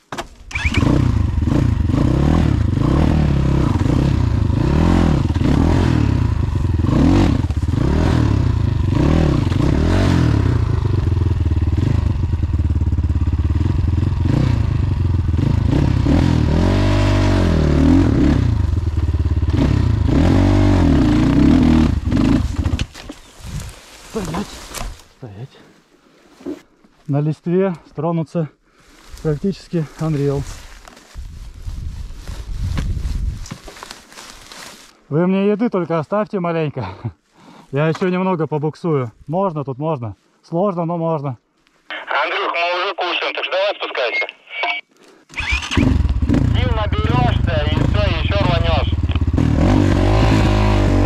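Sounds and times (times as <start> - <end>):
motorcycle engine revving: 0.5 - 24.6, 45.3 - 51.0.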